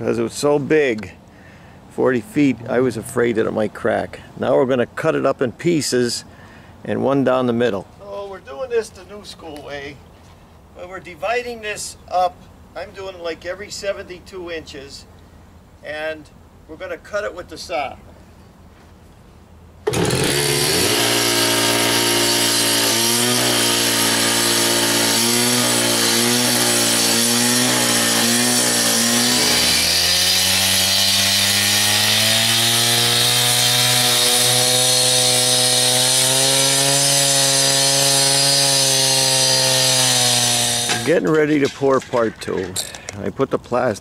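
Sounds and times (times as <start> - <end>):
cut-off saw cutting concrete: 19.9 - 41.5.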